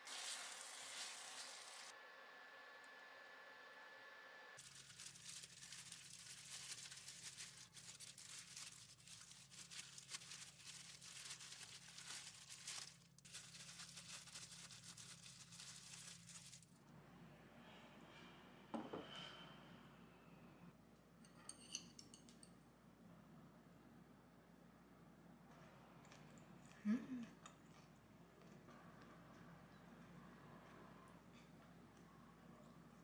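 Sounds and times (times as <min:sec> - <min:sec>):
plastic gloves crinkling: 0:04.6 - 0:16.8.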